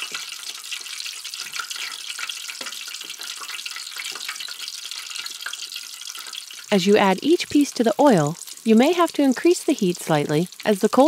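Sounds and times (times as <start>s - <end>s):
chicken frying in hot oil: 0.0s - 11.0s
oil crackling and popping: 0.0s - 11.0s.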